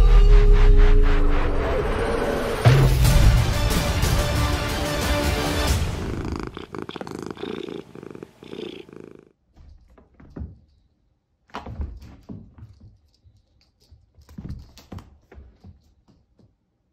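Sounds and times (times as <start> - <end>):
cat purring: 5.9 - 9.4.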